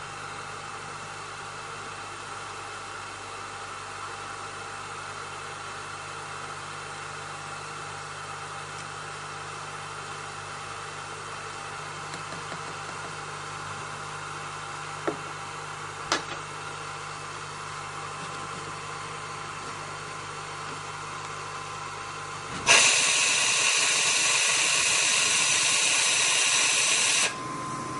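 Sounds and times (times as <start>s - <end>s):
hot air station humming: 15.0s - 27.9s.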